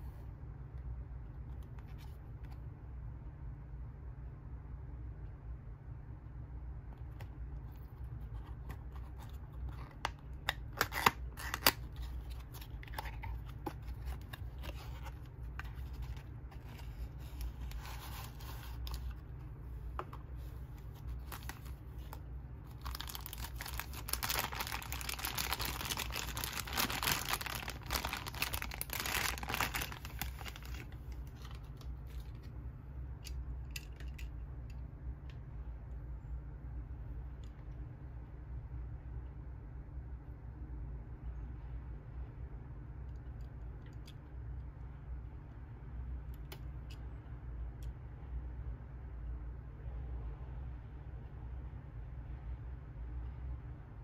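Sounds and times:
low hum: 0.0 - 54.0
plastic bag crinkling: 21.0 - 32.3.

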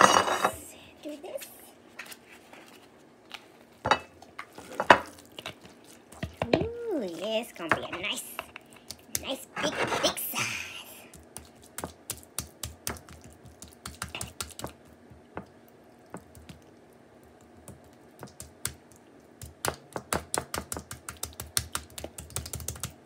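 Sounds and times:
hands patting meat mixture: 4.2 - 9.4, 11.0 - 23.0.

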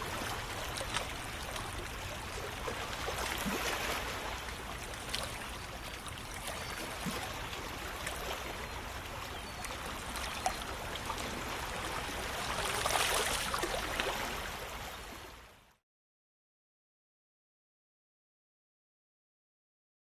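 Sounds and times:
sea water rushing and splashing: 0.0 - 15.6.

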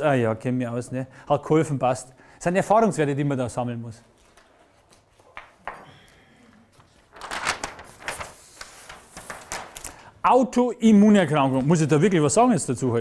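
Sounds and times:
paper sheet rustling and crackling: 6.7 - 10.1.

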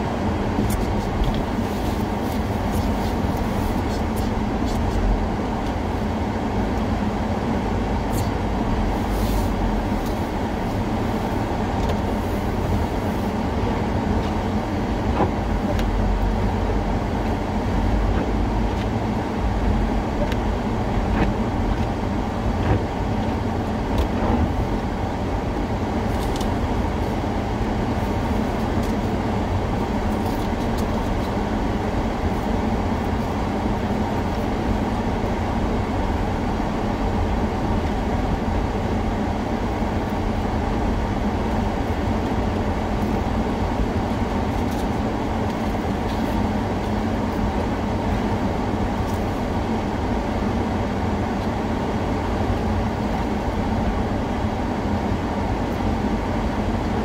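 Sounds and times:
moving vehicle rumble: 0.0 - 57.0.

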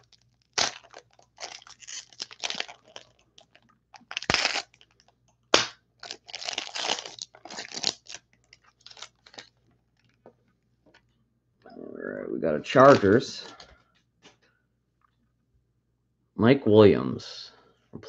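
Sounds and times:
foil wrapper tearing and crinkling: 0.0 - 10.2.

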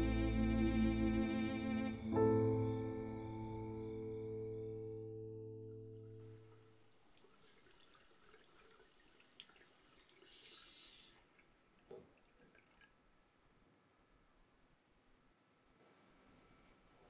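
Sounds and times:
soft water drips: 6.5 - 13.4.

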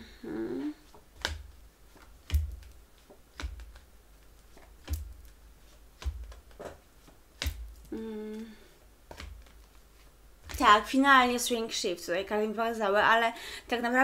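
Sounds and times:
cards tapping on table: 0.9 - 3.8, 7.4 - 7.9.

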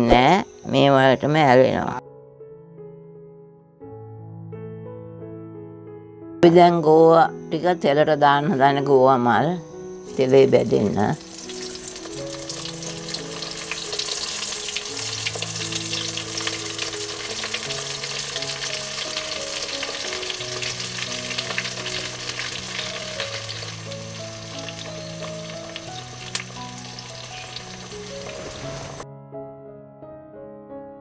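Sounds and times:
food deep-frying in oil: 11.0 - 29.0.

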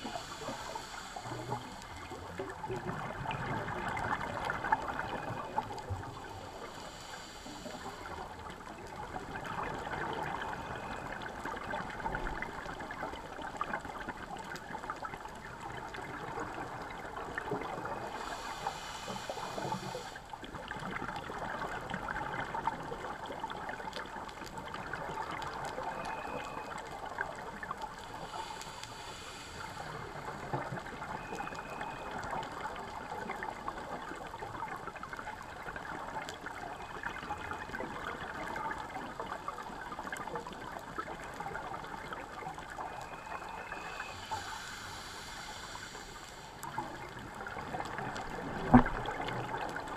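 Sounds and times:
regulator inhalation hiss: 0.0 - 2.1, 6.6 - 8.2, 18.0 - 20.2, 28.1 - 30.2, 43.3 - 46.8
bubbling gurgle of exhaled air: 0.0 - 49.9
steady fine crackle: 0.0 - 49.9.

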